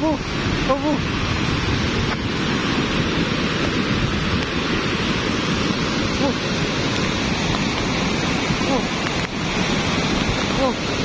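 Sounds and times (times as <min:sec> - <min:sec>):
mudflow rushing water: 0:00.0 - 0:11.0.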